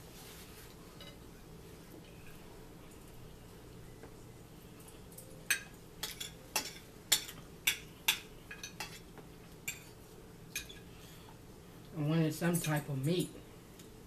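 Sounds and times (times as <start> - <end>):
forks clinking against plates: 5.1 - 9.0, 10.5 - 10.8, 12.4 - 13.2.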